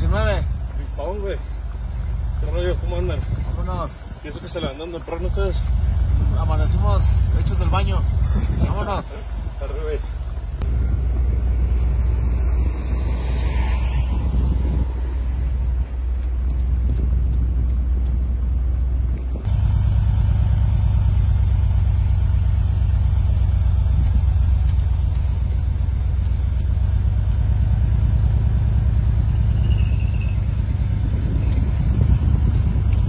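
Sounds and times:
slow vehicle engine rumble: 0.0s - 33.0s.

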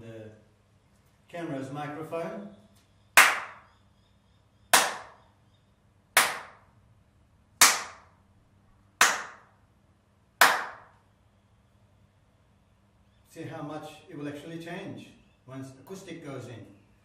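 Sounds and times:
hand claps echoing in room: 3.2s - 3.7s, 4.7s - 5.2s, 6.2s - 6.8s, 7.6s - 8.2s, 9.0s - 9.6s, 10.4s - 11.0s.

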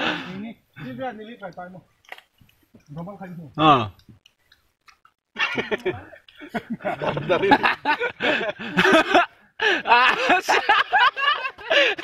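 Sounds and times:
people talking: 5.4s - 8.0s
people laughing: 5.4s - 12.0s.

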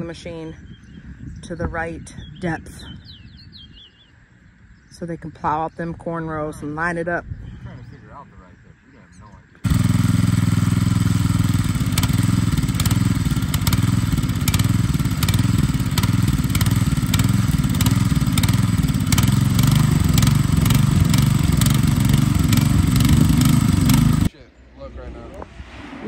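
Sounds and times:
small engine idling: 9.6s - 24.3s.

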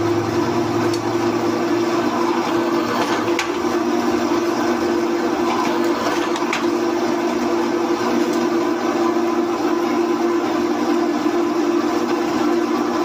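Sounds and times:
drill press humming: 0.0s - 13.0s.

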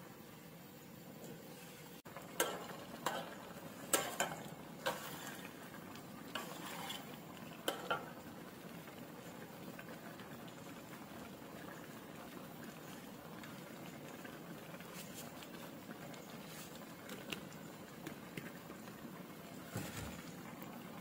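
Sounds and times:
curry bubbling: 1.1s - 21.0s
metal ladle scraping a wok: 1.5s - 5.6s, 6.3s - 8.0s.

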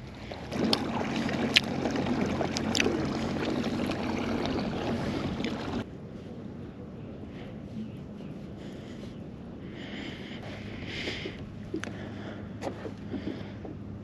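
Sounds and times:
pedal drive humming: 0.0s - 6.0s, 6.7s - 14.0s
water swishing along hull: 0.0s - 6.4s, 10.4s - 14.0s.

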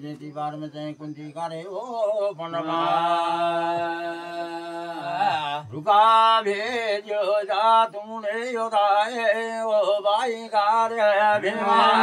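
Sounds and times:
voices chanting: 0.9s - 8.4s, 10.8s - 12.0s.

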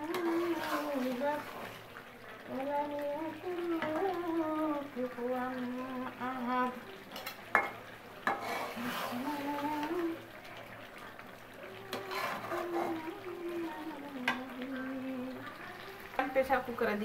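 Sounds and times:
metal spatula scraping a pan: 0.1s - 1.8s, 7.1s - 9.4s, 11.9s - 13.0s
spatula clacking against pan: 7.2s - 8.5s
person humming a tune: 11.8s - 15.5s.

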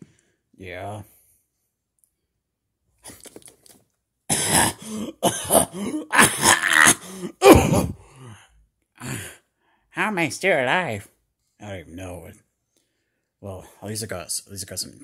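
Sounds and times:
person coughing and hacking: 4.3s - 8.0s.

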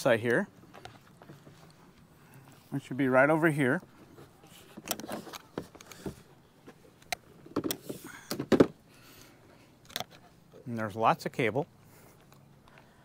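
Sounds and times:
antenna and cable handling noise: 3.8s - 8.8s, 9.8s - 10.3s.

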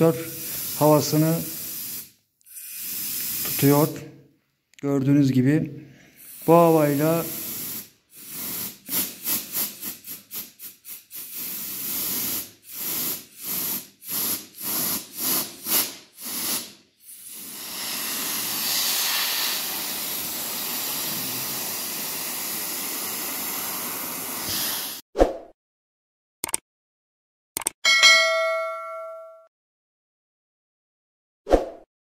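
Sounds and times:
compressed air blow gun hissing: 0.1s - 3.9s, 6.2s - 25.0s.

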